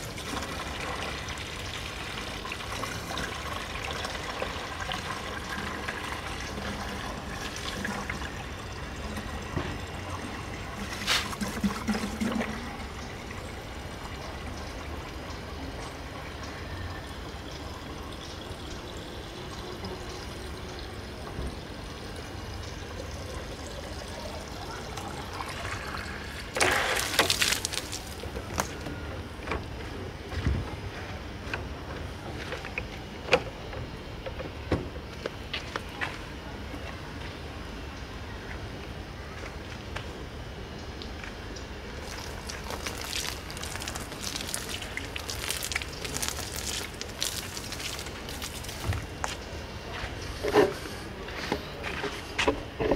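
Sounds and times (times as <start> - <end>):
hose water filling plastic tank: 0.0 - 28.9, 41.9 - 51.3.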